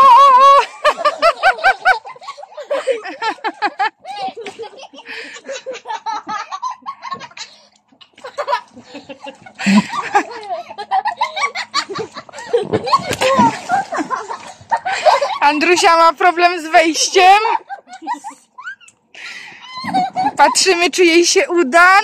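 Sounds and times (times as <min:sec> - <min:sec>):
children laughing and giggling: 0:00.0 - 0:20.9.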